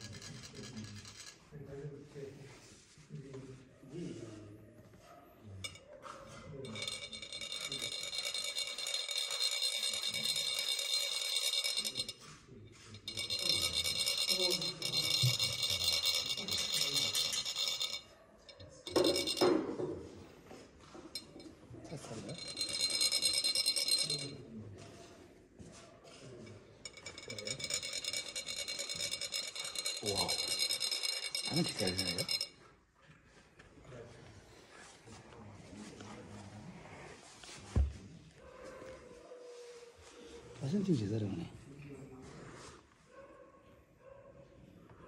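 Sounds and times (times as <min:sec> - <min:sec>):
metal funnel ringing rattle: 0:00.0 - 0:01.4, 0:06.5 - 0:19.8, 0:21.0 - 0:24.4, 0:26.8 - 0:32.6
high fine metal rasp: 0:06.6 - 0:19.4.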